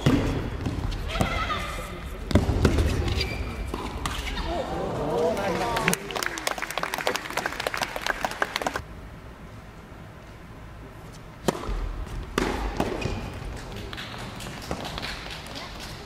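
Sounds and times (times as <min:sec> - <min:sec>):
scattered applause: 0:05.2 - 0:08.8
tennis racket hitting ball: 0:11.4 - 0:15.4
tennis ball bouncing: 0:11.4 - 0:15.5.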